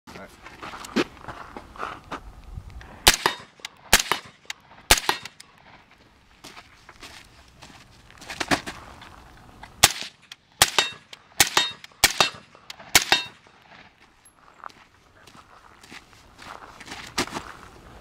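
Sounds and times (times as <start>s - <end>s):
suppressed rifle shots: 3.0s - 5.4s, 9.8s - 13.4s.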